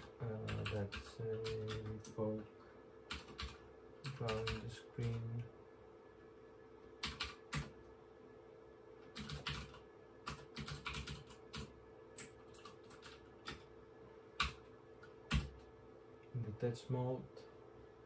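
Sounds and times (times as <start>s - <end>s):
typing on computer keyboard: 0.0s - 2.2s, 3.1s - 5.2s, 7.0s - 7.7s, 9.0s - 13.6s, 14.4s - 14.7s, 15.3s - 15.7s
faint steady hum: 0.0s - 18.0s.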